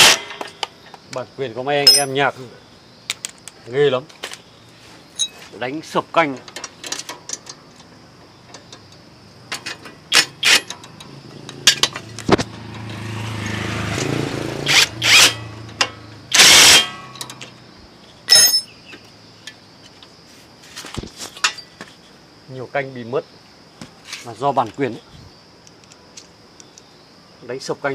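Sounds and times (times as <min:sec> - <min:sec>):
ringing metal clank: 0:01.8 - 0:02.2, 0:05.2 - 0:05.4, 0:18.3 - 0:18.8
metal tools clinking: 0:01.8 - 0:02.3, 0:05.1 - 0:05.5, 0:09.5 - 0:12.2, 0:18.3 - 0:18.8, 0:21.3 - 0:21.8
motorbike engine: 0:10.1 - 0:17.2.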